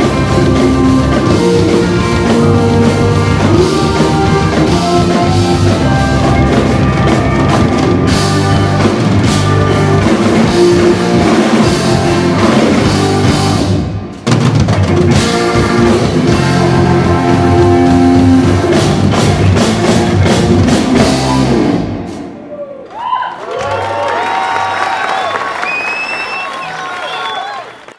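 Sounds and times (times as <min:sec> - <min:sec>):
live rock band playing: 0:00.0 - 0:22.4
audience cheering: 0:22.4 - 0:27.9.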